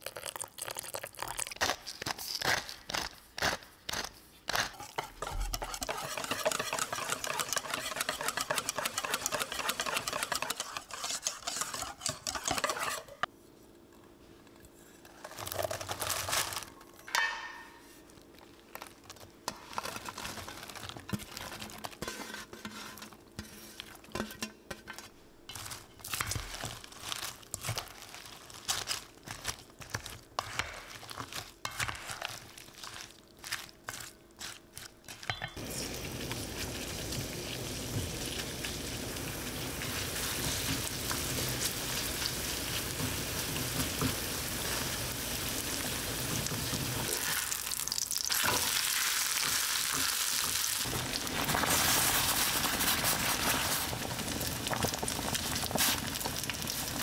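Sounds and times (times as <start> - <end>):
utensils and dishes clicking: 4.7 - 13.3.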